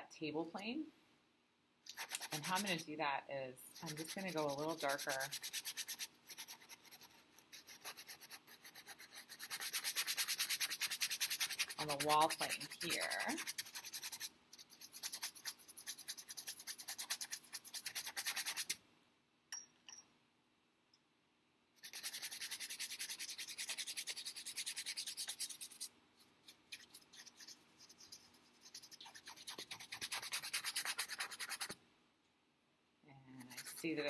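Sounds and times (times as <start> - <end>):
paintbrush scrubbing canvas: 1.9 - 2.8, 3.7 - 18.8, 21.8 - 31.8, 33.4 - 34.0.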